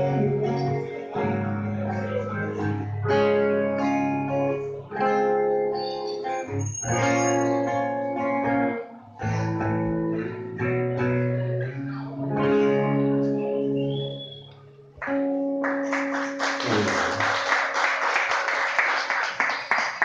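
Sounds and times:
guitars playing chords: 0.0 - 17.4
applause: 15.0 - 20.0.

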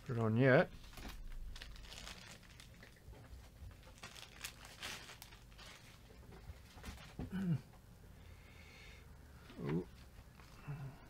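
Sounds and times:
small clicks and crackles: 0.0 - 6.2
packaging crinkling: 0.0 - 6.3.

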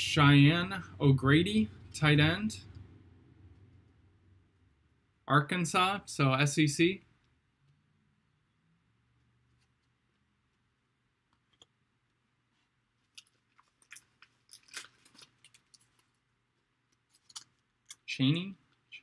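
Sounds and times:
plastic card sleeve crinkling: 13.0 - 16.2.

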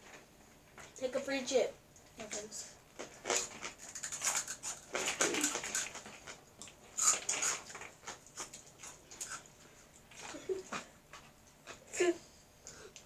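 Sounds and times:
chips crunching while chewed: 3.0 - 11.8.

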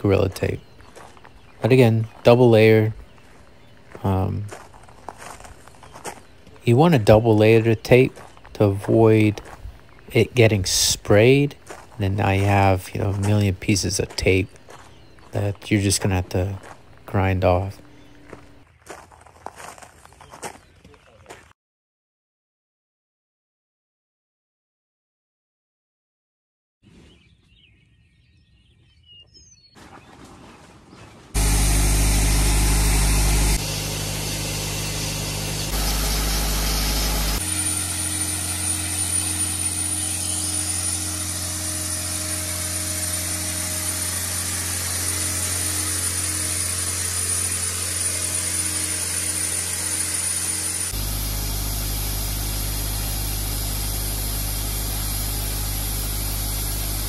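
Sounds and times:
air compressor engine hum: 31.4 - 57.0
blasting air hiss: 50.2 - 57.0.

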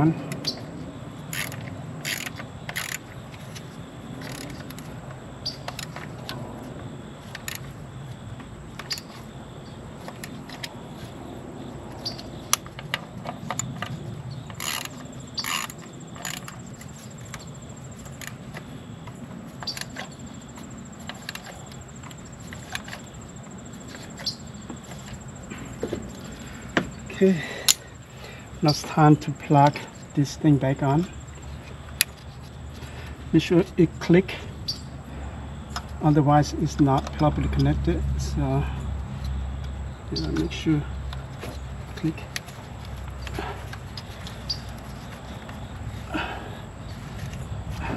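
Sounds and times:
high insect drone: 0.0 - 47.9.

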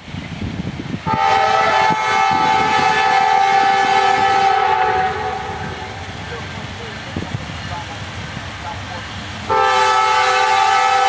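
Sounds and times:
freight train rumble and wheel clatter: 0.0 - 11.0
locomotive air horn blast: 1.0 - 6.1, 9.5 - 11.0.

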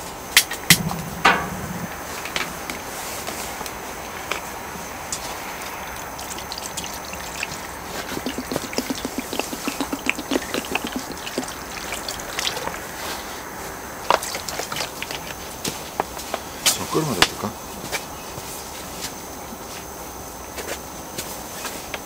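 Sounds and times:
sharp clicks and knocks: 0.4 - 2.6
water glugging from plastic bottle: 5.2 - 13.4, 14.0 - 15.8.

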